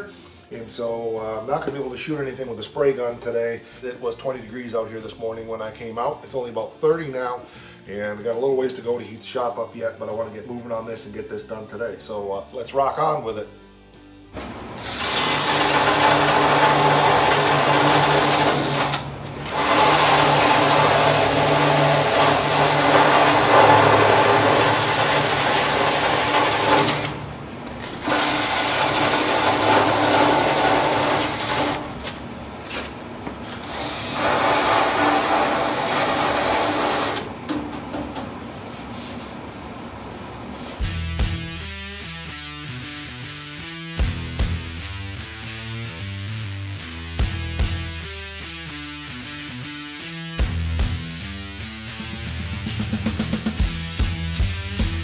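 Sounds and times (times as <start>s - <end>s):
power tool stripping sheet metal: 14.4s - 32.2s, 33.5s - 37.4s.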